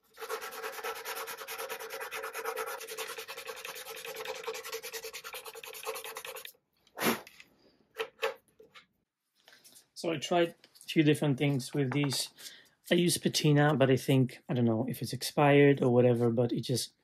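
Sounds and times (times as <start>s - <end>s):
hand sanding wood: 0.0s - 6.5s.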